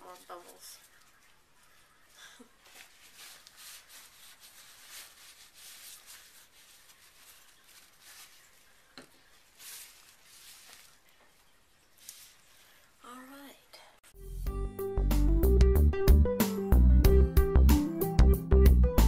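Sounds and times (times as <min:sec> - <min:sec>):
plastic gloves rustling on bottle: 0:00.0 - 0:13.0.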